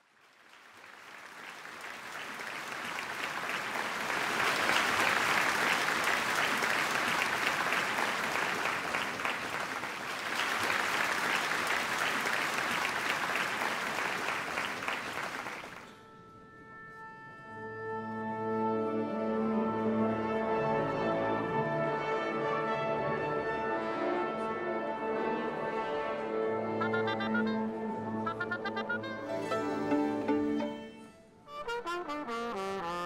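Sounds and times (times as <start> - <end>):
audience applause: 0.0 - 16.0, 26.8 - 27.4
orchestra playing long notes: 1.8 - 33.0.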